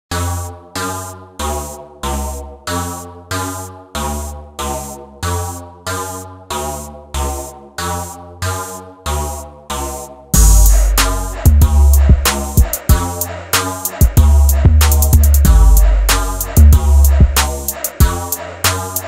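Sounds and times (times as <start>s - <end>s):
synthesizer riff: 0.1s - 19.0s
bass note: 10.4s - 12.4s, 14.2s - 17.4s.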